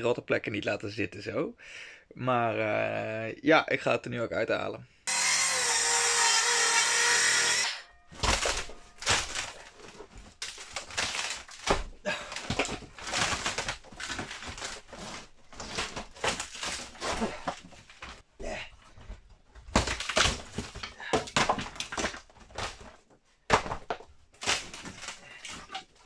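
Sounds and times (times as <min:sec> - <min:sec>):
power tool: 0:05.1 - 0:08.7
rotten wood cracking and crunching: 0:07.4 - 0:26.0.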